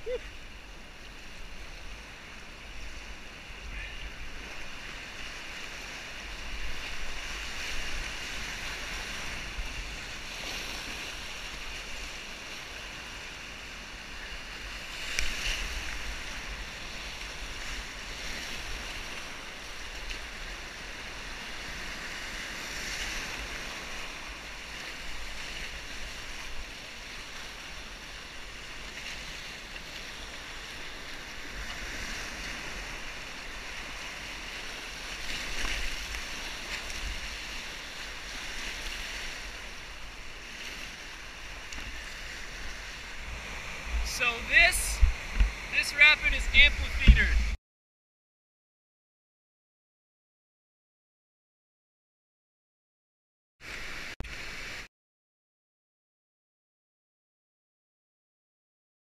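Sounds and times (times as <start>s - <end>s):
water splashes: 0.0s - 47.6s
whitewater rushing: 41.0s - 47.6s.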